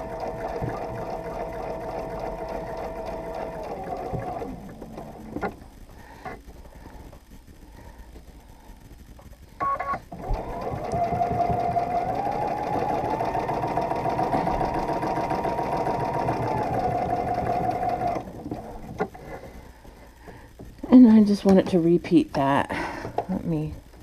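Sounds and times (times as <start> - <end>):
sewing machine stitching: 0.0 - 5.6, 10.1 - 19.2.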